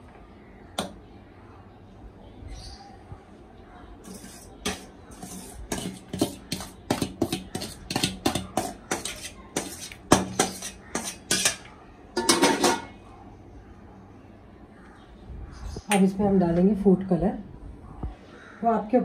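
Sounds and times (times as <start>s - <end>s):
spoon clinking and scraping metal pot: 4.0s - 13.0s.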